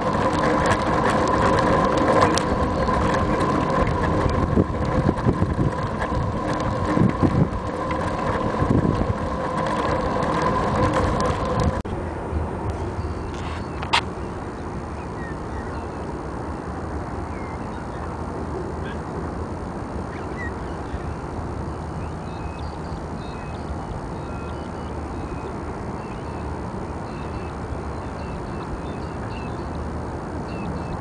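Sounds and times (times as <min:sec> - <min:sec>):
camera mount rumble and rattle: 0:00.0 - 0:11.8
wind on microphone: 0:00.0 - 0:31.0.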